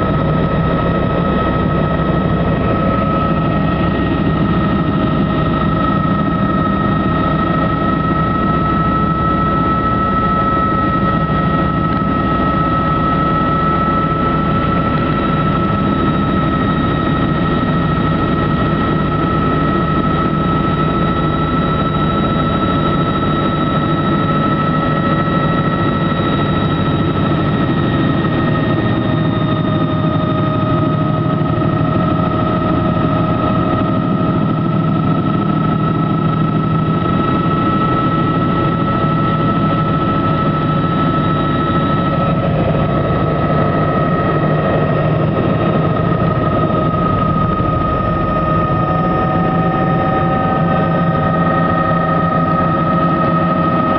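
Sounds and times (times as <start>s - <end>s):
helicopter engine and rotor drone: 0.0s - 53.9s
high whine: 0.0s - 53.9s.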